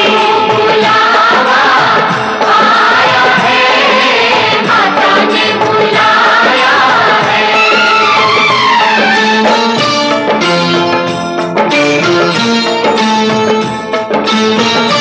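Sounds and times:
person singing devotional song: 0:00.0 - 0:08.2
instrumental accompaniment: 0:00.0 - 0:15.0.

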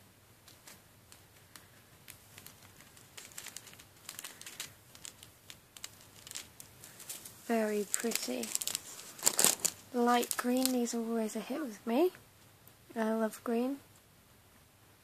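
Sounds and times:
plastic bag crinkling and clicking: 0:00.5 - 0:10.9.

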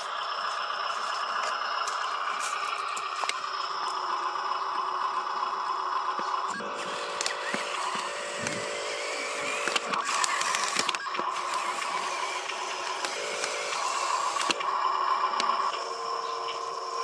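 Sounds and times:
small electric motor whining: 0:06.1 - 0:17.0
sharp clicks: 0:09.3 - 0:14.8.

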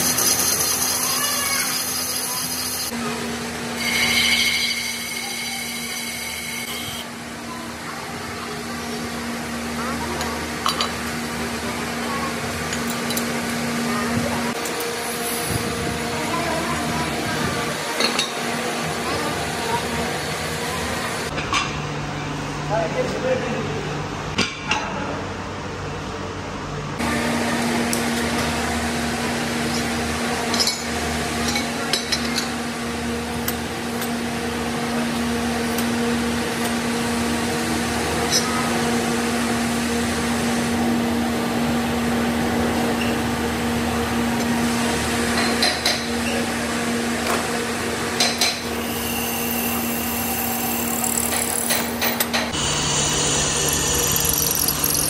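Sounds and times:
drill press humming: 0:03.7 - 0:07.1, 0:48.9 - 0:55.0
metal clinks: 0:53.9 - 0:55.0.

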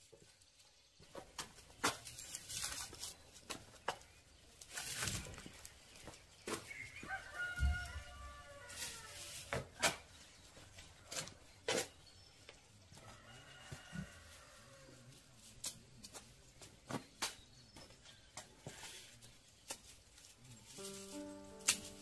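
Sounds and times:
rooster crowing: 0:07.0 - 0:09.3, 0:13.0 - 0:15.0.

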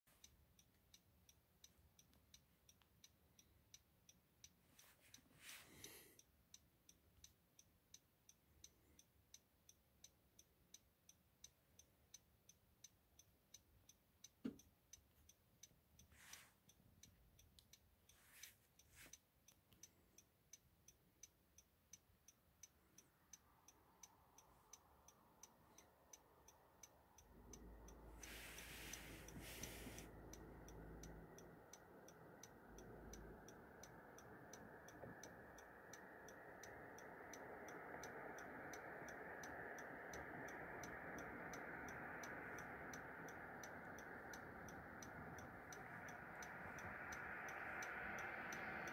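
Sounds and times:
faint even ticking: 0:00.1 - 0:48.9
low rumble: 0:23.6 - 0:48.9.

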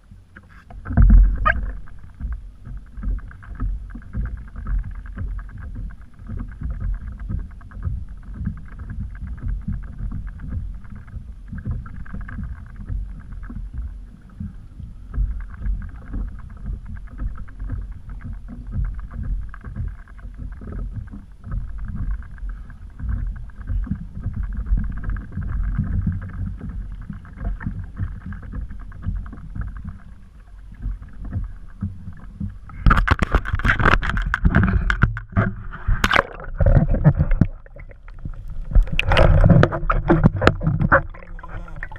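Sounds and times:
water lapping against kayak hull: 0:00.0 - 0:41.9.

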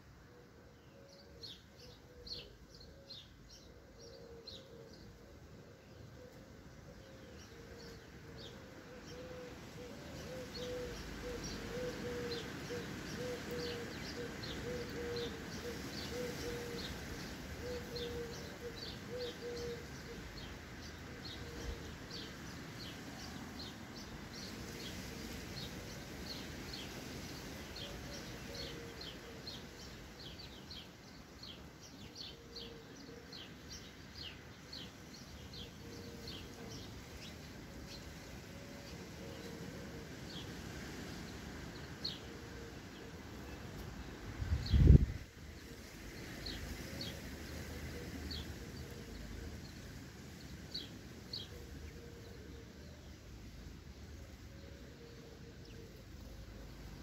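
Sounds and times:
steady background noise: 0:00.0 - 0:57.0
sparrows chirping: 0:48.3 - 0:52.3.

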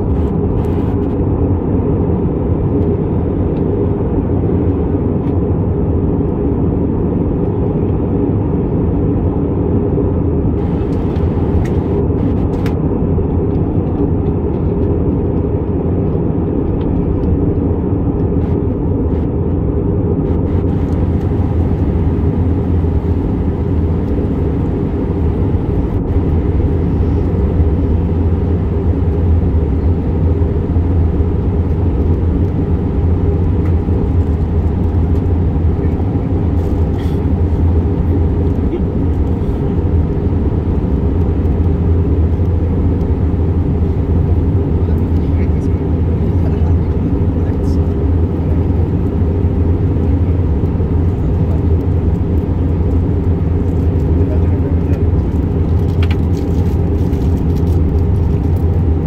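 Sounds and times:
rushing air in cabin: 0:00.0 - 0:02.5, 0:10.0 - 0:13.1, 0:18.2 - 0:59.0
jet engine drone: 0:00.0 - 0:59.0.

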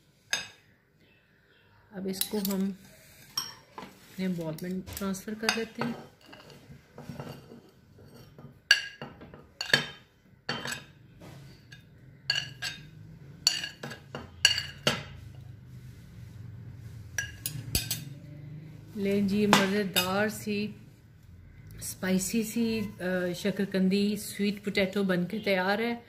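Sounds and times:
spoon clinking against plate: 0:08.1 - 0:11.0, 0:11.6 - 0:15.2, 0:17.2 - 0:18.2.

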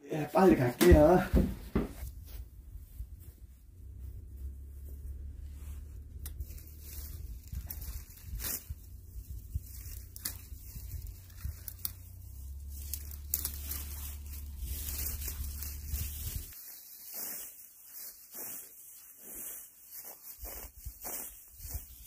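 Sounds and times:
pruning tool cutting branches: 0:06.2 - 0:16.6.

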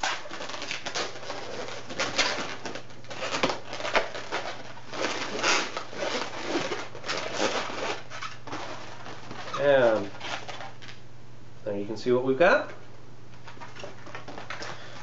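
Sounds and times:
balloon squeaking and rubbing: 0:00.0 - 0:11.0.

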